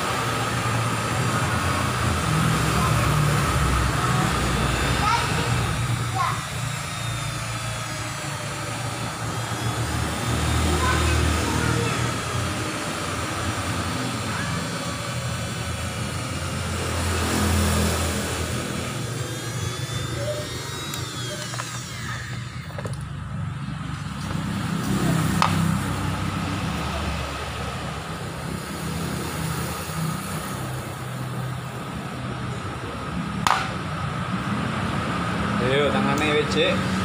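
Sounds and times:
low engine rumble: 0:00.0 - 0:37.0
sharp clicks: 0:20.2 - 0:23.1.

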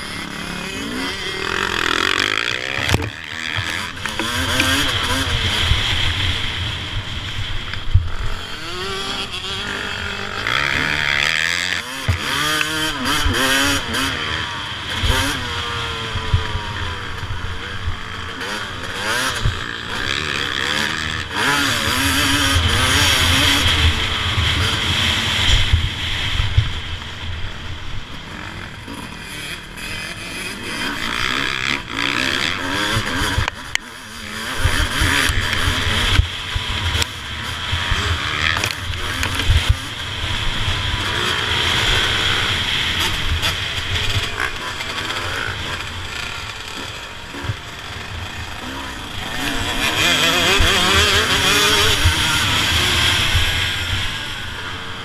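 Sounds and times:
motocross engine revving: 0:00.0 - 0:26.7, 0:28.2 - 0:55.0.

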